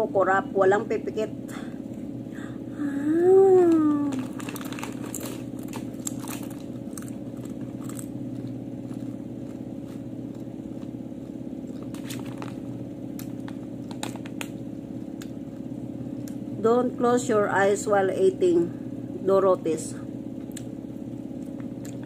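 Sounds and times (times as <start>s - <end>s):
steady low hum: 0.0s - 22.0s
chips crunching while chewed: 3.6s - 16.4s, 21.4s - 22.0s.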